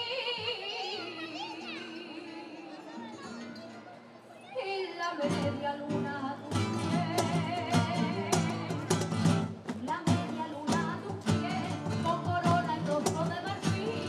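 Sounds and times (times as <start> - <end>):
person singing: 4.6 - 14.0
strummed guitar: 5.2 - 14.0.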